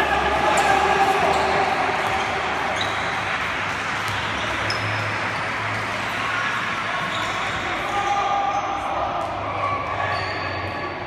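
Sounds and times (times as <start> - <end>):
hubbub of voices: 0.0 - 11.0
ball bouncing on court: 0.6 - 5.9.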